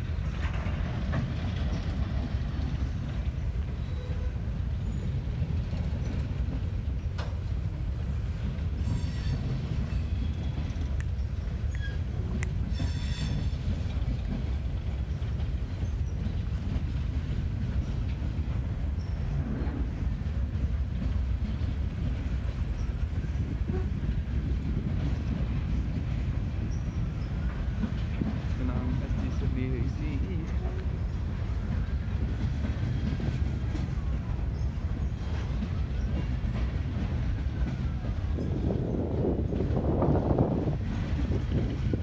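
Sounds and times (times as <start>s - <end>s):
freight train wheels rumbling: 0.0s - 42.0s
high-pitched wheel squeals: 8.8s - 10.5s, 11.6s - 13.6s
sharp clicks: 10.9s - 12.8s.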